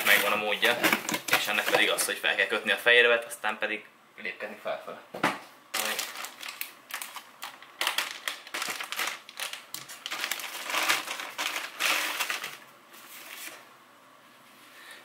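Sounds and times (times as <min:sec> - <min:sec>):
plastic bag crinkling: 0:00.0 - 0:02.0, 0:05.8 - 0:13.6.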